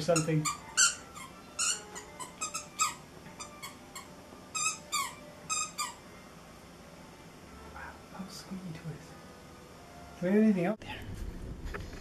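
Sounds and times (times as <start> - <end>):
dog toy squeaking: 0.1 - 6.0.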